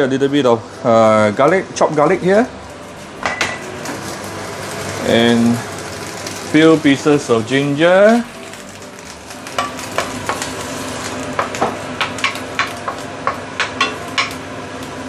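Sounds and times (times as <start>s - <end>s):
garlic sizzling in oil: 1.2s - 15.0s
spatula tapping and scraping wok: 9.6s - 14.4s.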